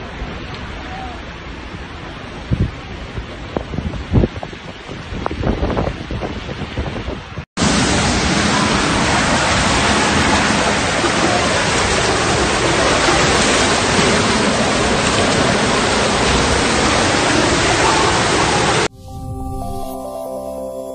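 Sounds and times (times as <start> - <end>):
floodwater rushing: 7.6 - 18.9
music: 18.9 - 20.9.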